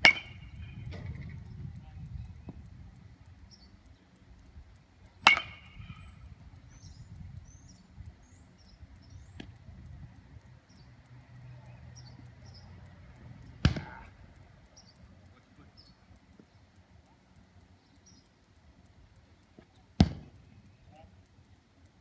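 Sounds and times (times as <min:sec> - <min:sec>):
metal bat hitting ball: 0:00.0 - 0:00.7, 0:05.2 - 0:06.0.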